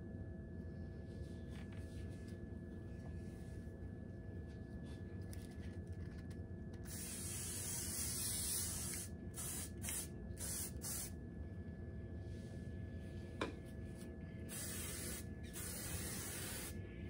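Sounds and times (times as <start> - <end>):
aerosol hairspray hissing: 6.9 - 11.1, 14.5 - 16.8.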